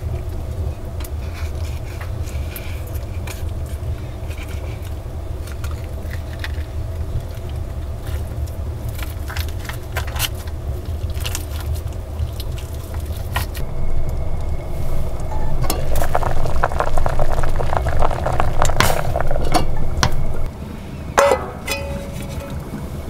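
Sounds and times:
steady low rumble: 0.0 - 23.0
light clicks and scrapes: 1.0 - 10.5.

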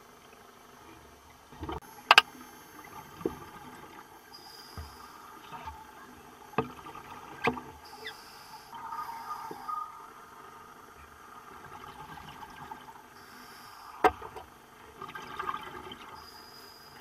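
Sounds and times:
underwater clicks and knocks: 1.6 - 2.3, 6.5 - 7.7, 14.0 - 14.5
faint hiss: 13.0 - 14.8.

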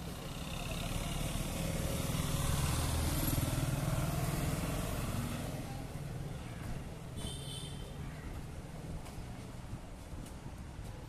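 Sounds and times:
small truck passing: 0.0 - 6.0
motorcycle engines passing: 0.0 - 6.4.

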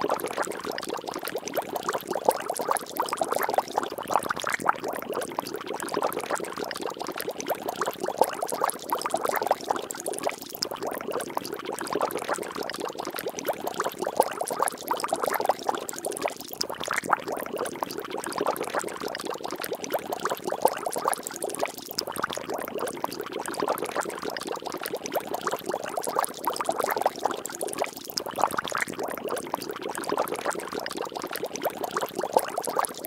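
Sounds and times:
water bubbling and splashing: 0.0 - 33.0.

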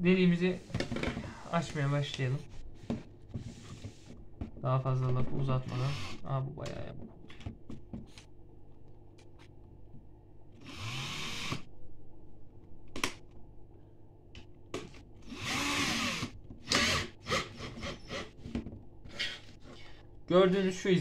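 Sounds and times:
cordless drill motor bursts: 10.6 - 11.6, 15.3 - 18.2.

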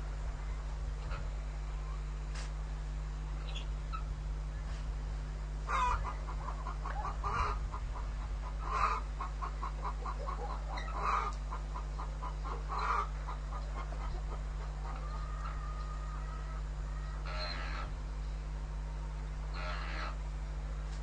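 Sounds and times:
steady low hum: 0.0 - 21.0
chickens clucking: 5.7 - 18.0, 19.5 - 20.2.

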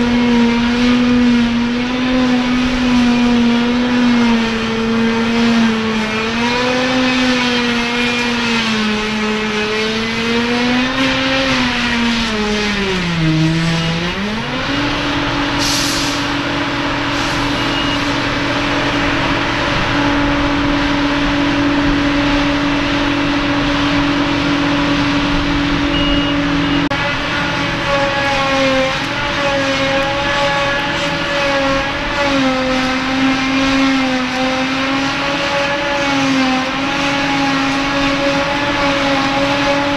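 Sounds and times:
forage harvester droning: 0.0 - 39.9
short hiss: 15.6 - 16.3.

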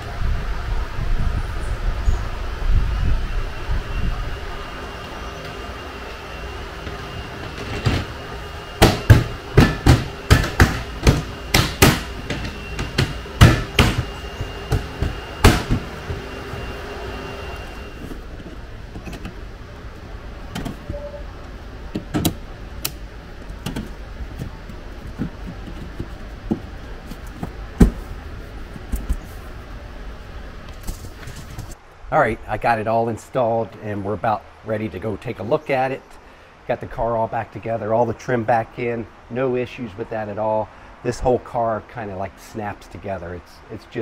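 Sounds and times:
seat cushion knocks: 8.8 - 16.3.

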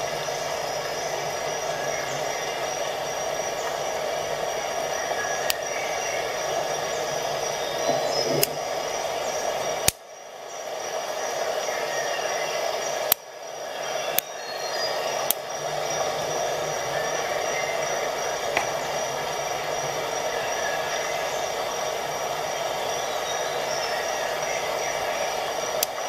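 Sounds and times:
background hum: 0.0 - 26.0
sharp clicks: 9.8 - 10.0, 25.7 - 26.0.

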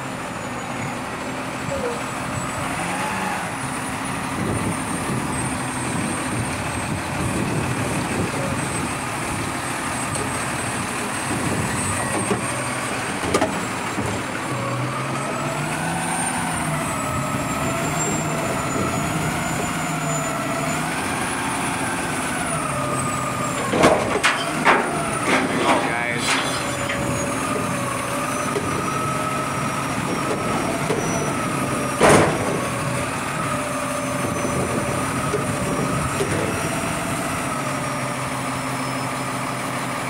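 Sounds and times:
garbage truck engine revving: 0.0 - 40.0
metal bangs: 23.5 - 27.8.

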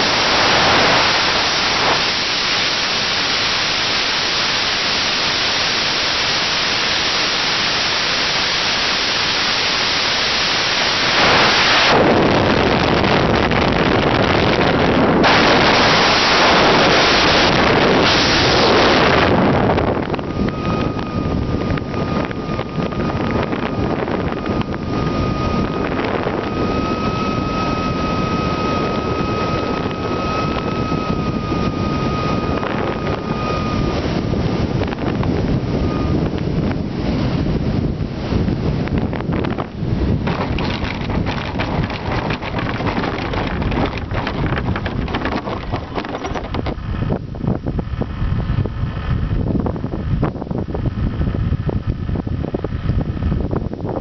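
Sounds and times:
airflow rushing over camera: 0.0 - 54.0
thin steady whistle: 20.0 - 34.3, 35.8 - 36.3.

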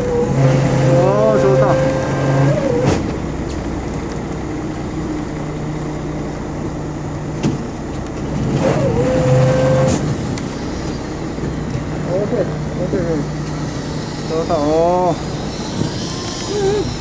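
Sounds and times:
short whine: 0.0 - 3.5, 8.3 - 17.0
boat engine running: 0.0 - 17.0.

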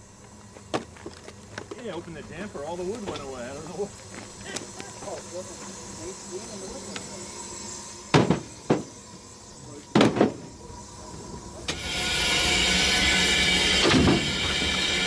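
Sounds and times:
steam locomotive hiss: 0.0 - 0.8, 1.8 - 15.0.

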